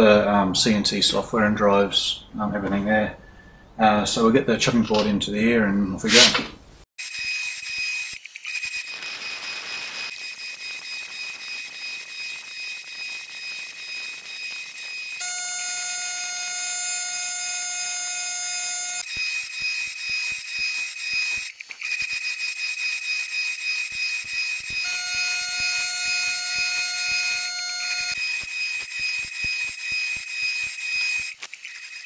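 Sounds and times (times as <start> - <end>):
router spindle whining: 7.0 - 32.0
irregular ticking of cutting: 10.1 - 32.0.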